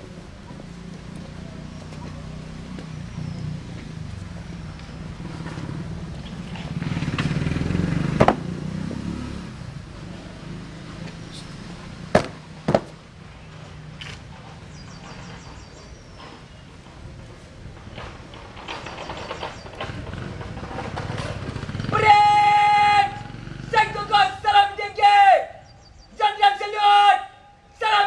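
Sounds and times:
sharp knocks: 8.1s - 8.6s, 12.1s - 13.0s.

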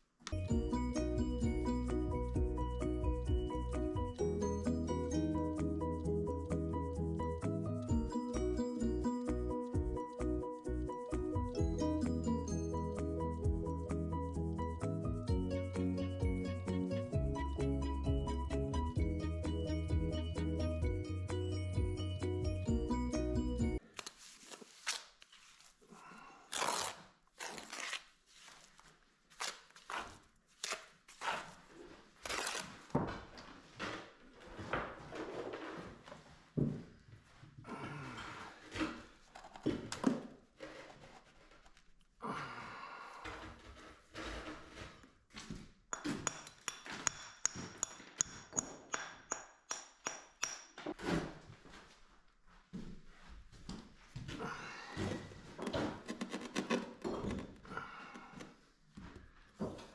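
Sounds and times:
hammer striking stone: 45.9s - 50.7s.

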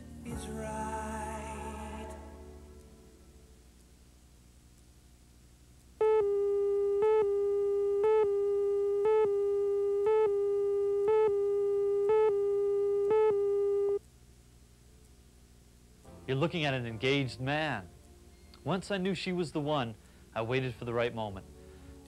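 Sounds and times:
steady buzzy tone: 0.0s - 16.2s.

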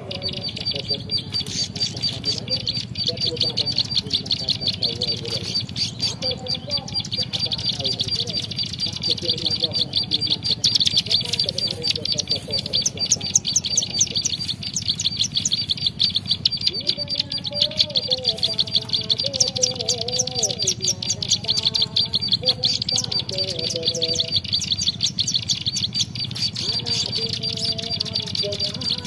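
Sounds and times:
low sliding bird notes: 0.0s - 29.0s
rapid high bird chirps: 0.0s - 29.0s.

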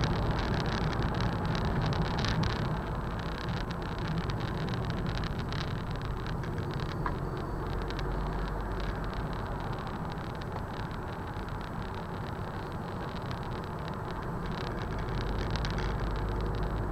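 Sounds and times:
road and engine rumble: 0.0s - 16.9s
small clicks and rattles: 0.0s - 16.9s.

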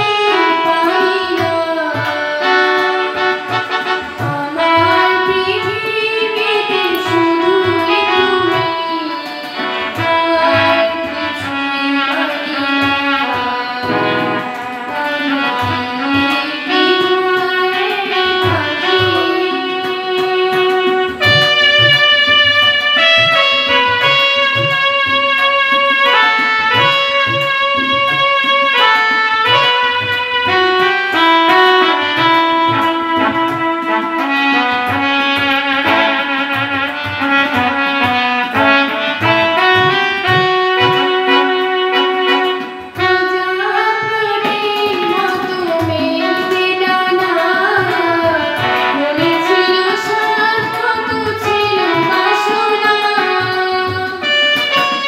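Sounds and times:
girl singing into a microphone: 0.0s - 55.0s
harmonium: 0.0s - 55.0s
steady drum rhythm: 38.6s - 43.2s.

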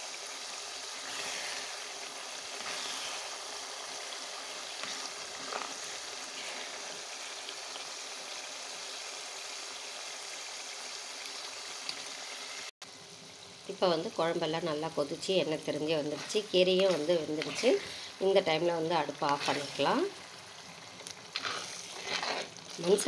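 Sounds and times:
thick curry bubbling: 0.1s - 10.1s, 15.5s - 23.0s
metal ladle stirring: 21.0s - 23.0s.

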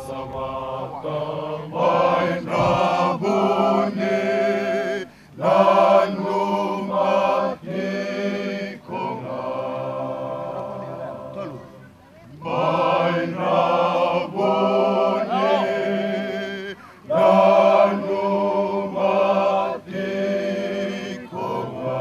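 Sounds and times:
group singing chant in harmony: 0.0s - 22.0s.

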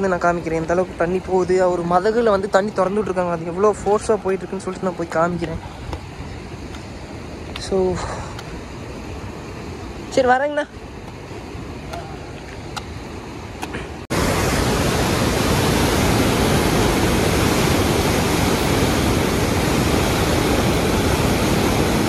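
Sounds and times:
river wash: 0.0s - 22.0s
roar of water from sluice gate: 14.1s - 22.0s.

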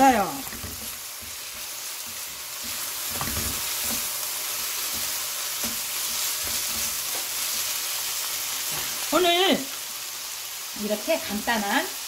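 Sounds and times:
wooden spatula tapping and scraping: 0.0s - 7.8s
food sizzling in a wok: 0.0s - 12.0s.

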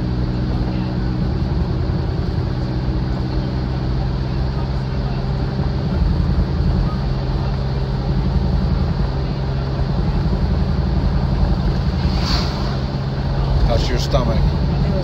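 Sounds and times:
car engine running: 0.0s - 15.0s
road and wind noise: 0.0s - 15.0s.

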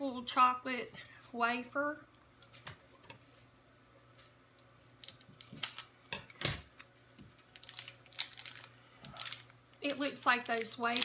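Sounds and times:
plastic wrapper crinkling: 5.0s - 5.9s, 6.8s - 11.0s.

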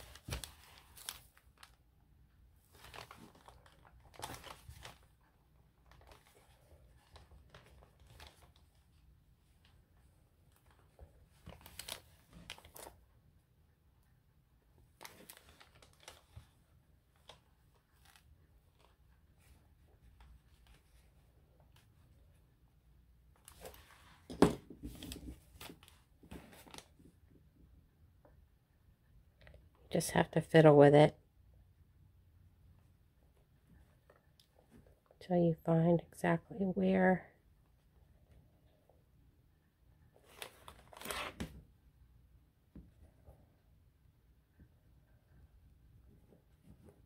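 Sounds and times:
paper and fabric rustling: 0.0s - 1.9s, 2.5s - 13.1s, 14.8s - 22.4s, 23.3s - 27.2s, 40.2s - 41.6s.

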